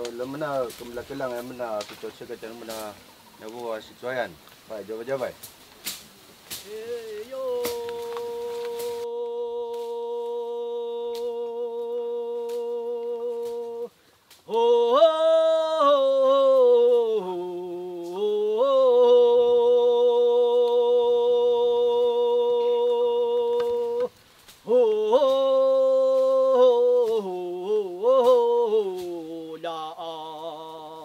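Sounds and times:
person chanting long notes: 0:06.6 - 0:13.9, 0:14.5 - 0:24.1, 0:24.7 - 0:31.0.

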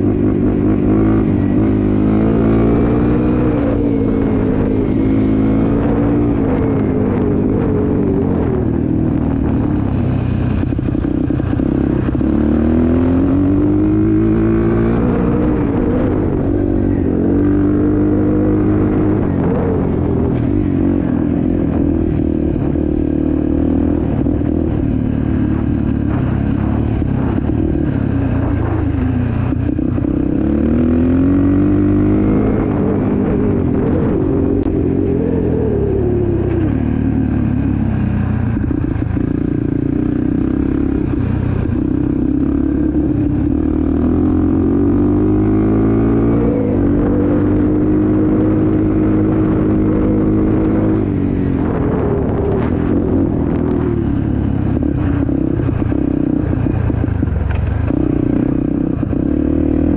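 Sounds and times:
off-road vehicle engine revving: 0:00.0 - 0:08.9, 0:41.7 - 0:59.9.

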